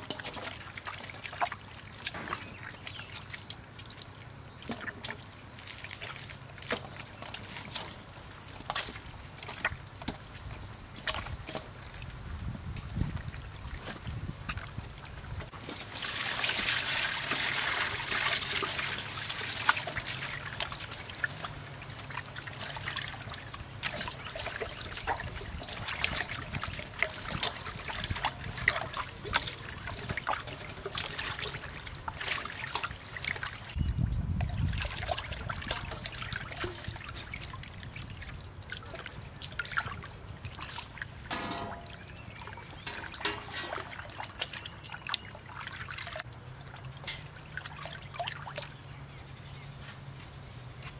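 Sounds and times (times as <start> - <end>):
wet sloshing and squelching: 0.0 - 48.9
water poured into metal bowl: 41.3 - 46.2.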